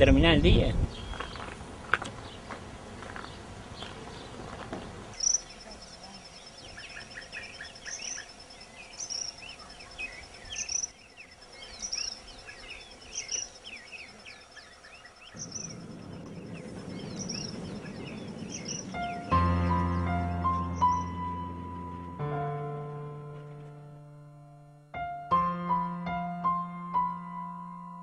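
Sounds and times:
insects trilling: 0:03.2 - 0:22.4
insect chirps: 0:05.1 - 0:23.7.

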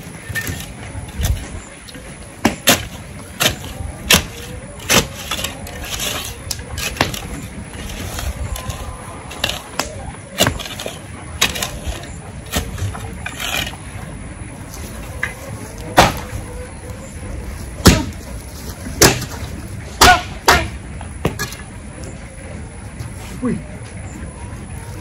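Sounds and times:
shovel scraping and knocking: 0:00.0 - 0:01.6, 0:02.4 - 0:13.9
steady low rumble: 0:00.0 - 0:25.0.

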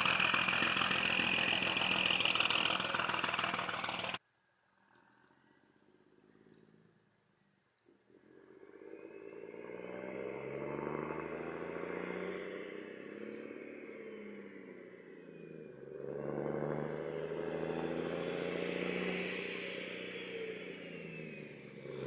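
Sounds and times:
diesel truck engine accelerating: 0:00.0 - 0:04.2, 0:09.0 - 0:22.0.

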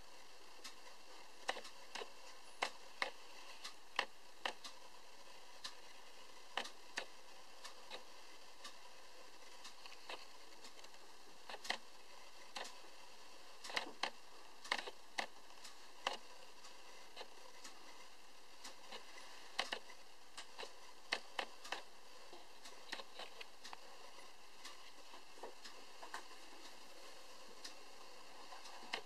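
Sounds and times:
faint hiss: 0:00.0 - 0:29.0.

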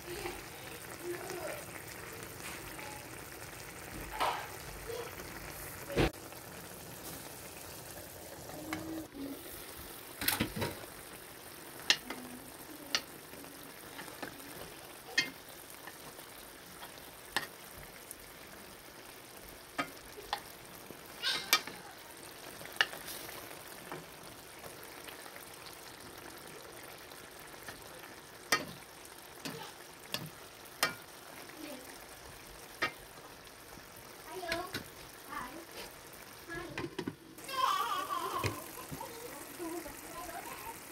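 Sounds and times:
fish sizzling in a pan: 0:00.0 - 0:40.9
spoon knocking the pan: 0:11.8 - 0:12.2, 0:21.3 - 0:21.8, 0:27.7 - 0:28.8, 0:29.4 - 0:31.1, 0:32.7 - 0:33.1, 0:36.7 - 0:37.2.

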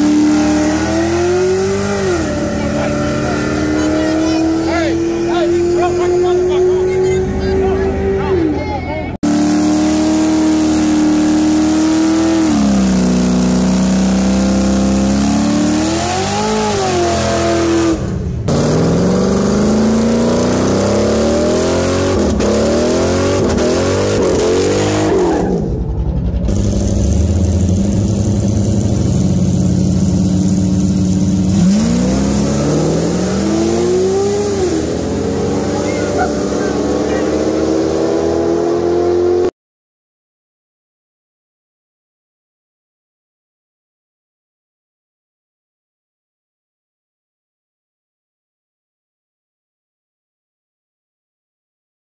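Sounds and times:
car engines revving: 0:00.0 - 0:39.5.

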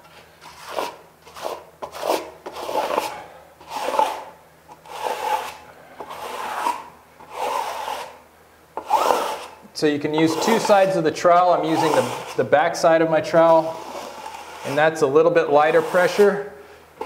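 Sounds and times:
steel trowel scraping membrane: 0:00.4 - 0:08.2, 0:08.8 - 0:09.6, 0:10.2 - 0:11.0, 0:11.7 - 0:12.5, 0:13.3 - 0:16.4.

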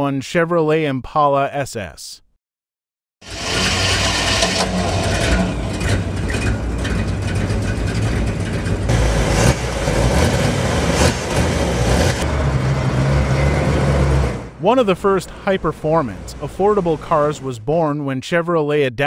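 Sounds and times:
car engine idling: 0:03.3 - 0:17.4.

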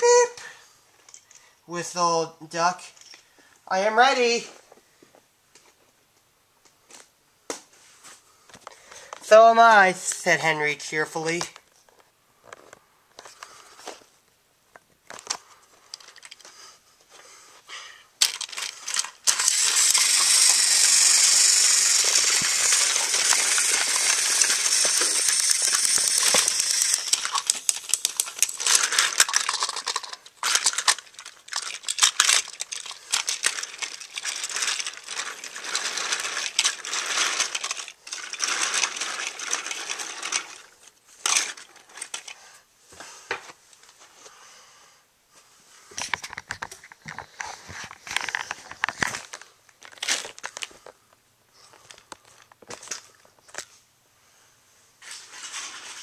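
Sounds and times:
toy train wheels clicking: 0:18.2 - 0:42.4.

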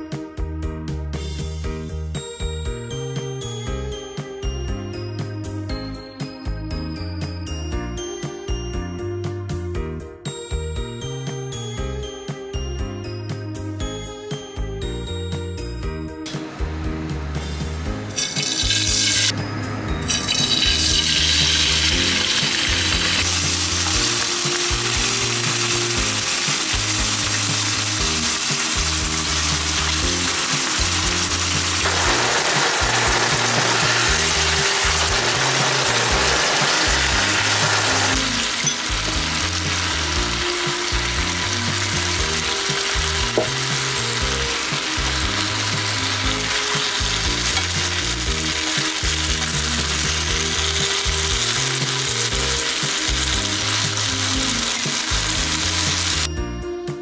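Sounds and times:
chicken sizzling in a frying pan: 0:18.1 - 0:19.3, 0:20.1 - 0:56.3
sauce simmering: 0:20.7 - 0:56.2.

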